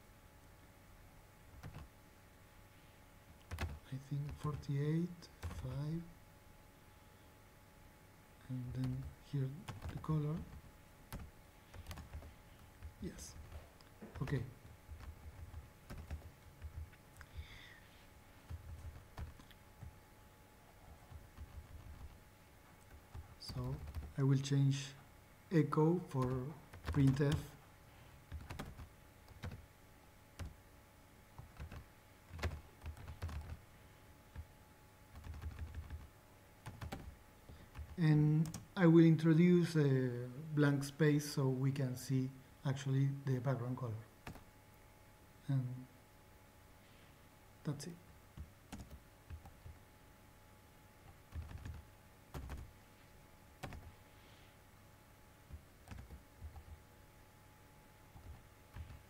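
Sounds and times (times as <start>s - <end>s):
faint steady hum: 0.0s - 59.0s
keyboard typing: 1.5s - 1.9s, 3.4s - 4.7s, 5.4s - 5.9s, 8.6s - 17.6s, 18.4s - 20.0s, 20.9s - 22.2s, 22.8s - 24.2s, 26.1s - 27.5s, 28.3s - 29.6s, 30.4s - 30.6s, 31.4s - 33.6s, 35.1s - 38.7s, 44.2s - 44.5s, 48.4s - 49.8s, 51.0s - 52.7s, 53.6s - 54.0s, 55.5s - 56.8s, 58.1s - 59.0s
keyboard key presses: 1.6s - 1.9s, 3.4s - 4.6s, 28.3s - 29.6s, 51.3s - 52.7s, 53.6s - 53.9s, 55.5s - 56.8s.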